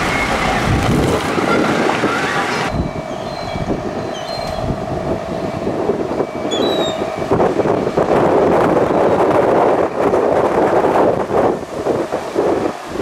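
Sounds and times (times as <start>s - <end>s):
diesel engine humming: 0.0s - 13.0s
fire engine rushing noise: 0.0s - 13.0s
short high squeaks: 2.3s - 4.7s, 6.5s - 7.0s.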